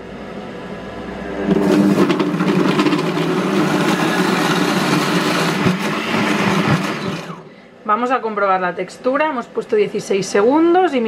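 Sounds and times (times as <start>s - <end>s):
food processor motor chopping: 1.4s - 7.5s.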